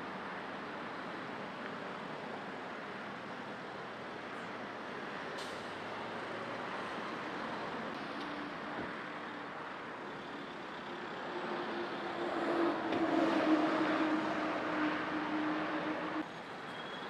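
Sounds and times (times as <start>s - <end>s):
road traffic noise: 0.0s - 17.0s
vehicle engine drone passing: 10.8s - 16.2s.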